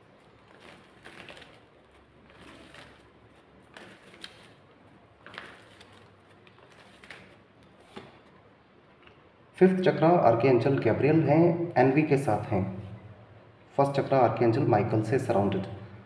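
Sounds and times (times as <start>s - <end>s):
cards being shuffled: 0.2s - 8.3s.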